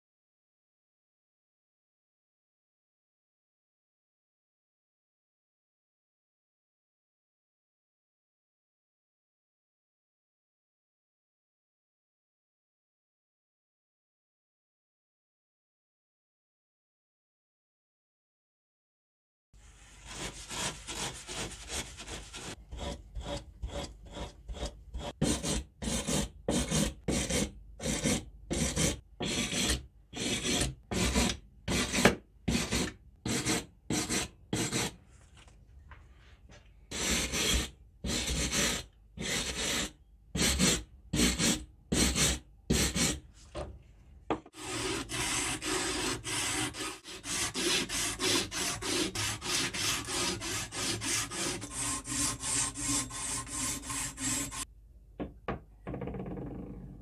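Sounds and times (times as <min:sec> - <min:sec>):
sandpaper rasping on metal: 0:19.7 - 0:34.9, 0:36.9 - 0:43.2, 0:44.6 - 0:54.7.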